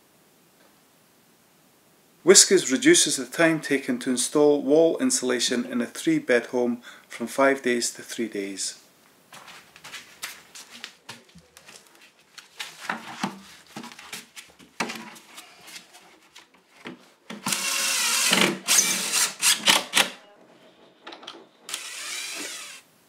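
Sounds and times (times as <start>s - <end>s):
cordless drill running: 17.5s - 19.7s, 21.7s - 22.9s.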